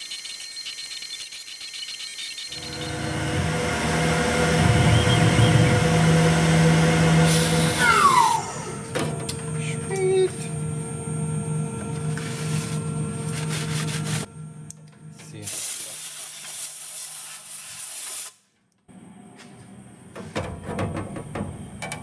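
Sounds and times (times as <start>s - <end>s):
machine hum: 2.4s - 15.4s
air blow gun hissing: 15.4s - 18.4s.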